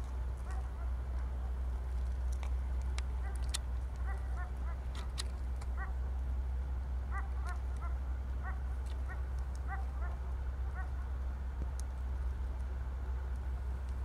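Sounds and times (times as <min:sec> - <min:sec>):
steady low rumble: 0:00.0 - 0:14.0
distant yelping animal honks: 0:00.4 - 0:01.7, 0:03.1 - 0:06.2, 0:07.0 - 0:11.2
faint clicks: 0:01.9 - 0:05.8.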